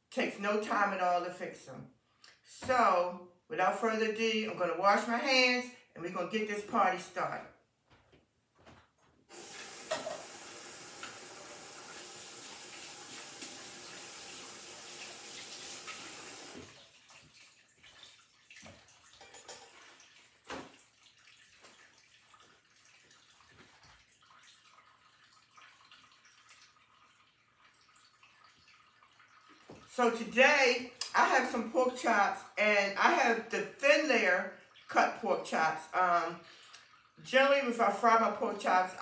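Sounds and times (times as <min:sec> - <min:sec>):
faint knocks and handling: 0:07.8 - 0:09.3
hands washing under water: 0:09.3 - 0:29.9
faucet running: 0:09.3 - 0:31.5, 0:34.1 - 0:38.5.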